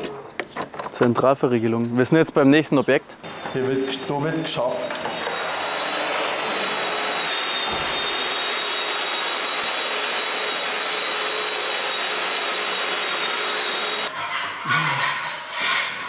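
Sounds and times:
power tool whining: 3.2s - 14.1s.

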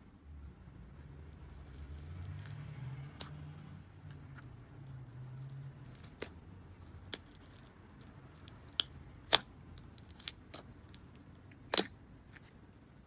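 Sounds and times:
clay slime clicks and pops: 8.6s - 10.7s, 11.6s - 12.0s.

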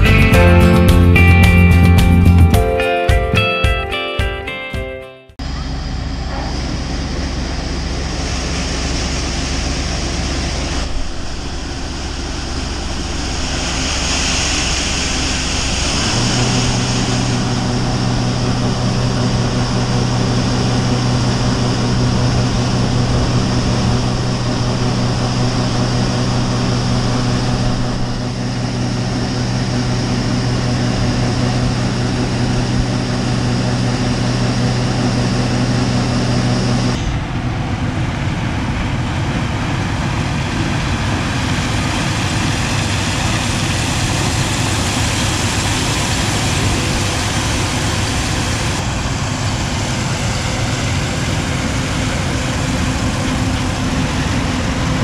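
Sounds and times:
combine diesel engine drone: 0.0s - 2.8s, 5.4s - 55.0s
auger pouring grain: 7.7s - 36.1s.

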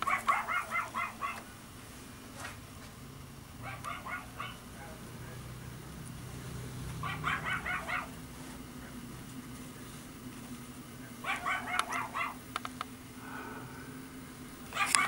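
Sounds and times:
small dog yapping: 0.0s - 1.4s, 3.6s - 4.6s, 7.0s - 8.2s, 11.2s - 12.4s, 14.7s - 15.0s
low steady hum: 0.0s - 15.0s.

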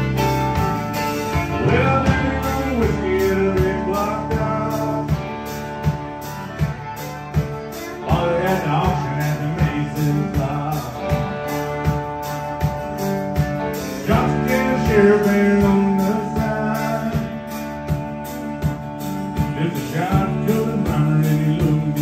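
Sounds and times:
country rock band playing: 0.0s - 22.0s
fiddle sliding notes: 0.0s - 22.0s.

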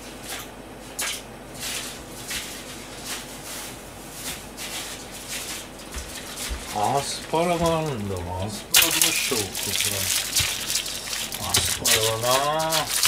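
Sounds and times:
rustling crinkling handling noises: 1.6s - 13.0s.

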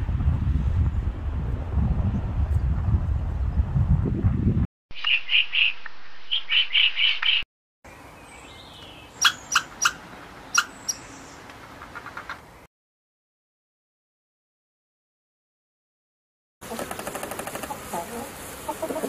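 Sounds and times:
high bird-like chirps: 4.9s - 7.4s, 8.4s - 11.4s.

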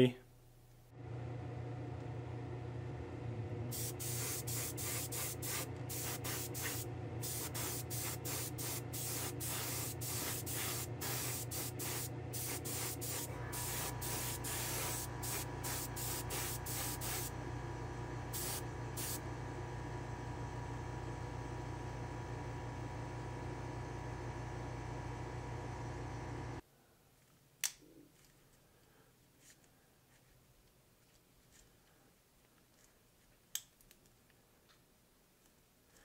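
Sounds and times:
steady low hum: 0.1s - 26.6s
spray gun hissing bursts: 3.7s - 17.3s, 18.3s - 19.2s.

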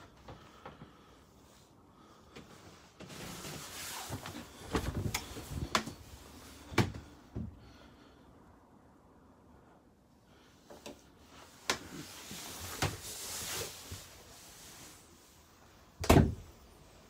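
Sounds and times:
short rustle: 2.4s - 6.7s, 11.3s - 15.5s.

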